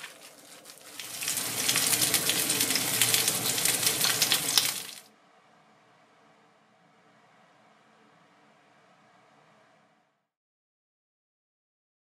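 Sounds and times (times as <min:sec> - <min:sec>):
peppers crackling in a pan: 0:00.0 - 0:05.0.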